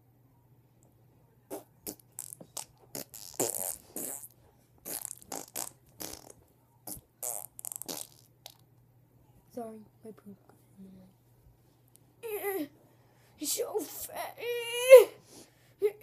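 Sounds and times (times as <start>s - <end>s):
fart noises: 1.5s - 8.6s.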